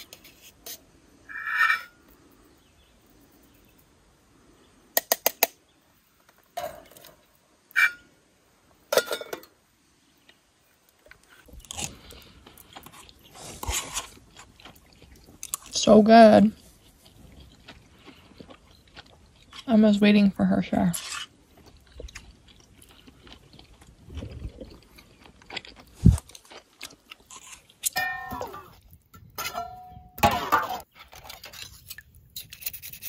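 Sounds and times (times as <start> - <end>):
utensils scraping on plate: 0.0 - 2.0
chewing: 11.0 - 15.8, 16.4 - 19.8, 20.9 - 28.0
brief high tone: 28.0 - 28.7.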